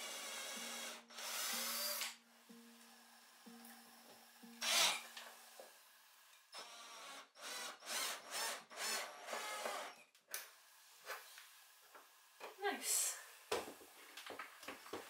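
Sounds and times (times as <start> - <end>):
cordless drill driving screw: 0.0 - 2.2, 4.6 - 5.3, 6.6 - 10.0.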